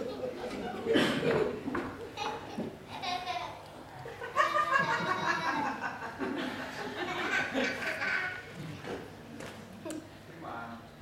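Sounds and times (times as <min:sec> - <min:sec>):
audience laughing: 0:00.0 - 0:02.5, 0:04.0 - 0:08.4.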